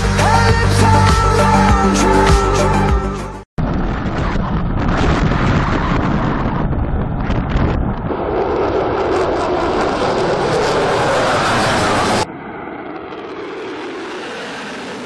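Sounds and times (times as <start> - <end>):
jet engines roaring: 3.6 - 15.0.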